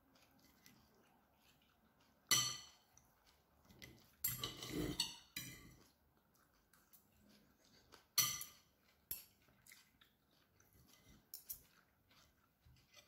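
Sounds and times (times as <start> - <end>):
cutlery clinking on a ceramic plate: 2.3 - 2.8, 3.9 - 5.9, 8.2 - 9.5, 11.0 - 13.0.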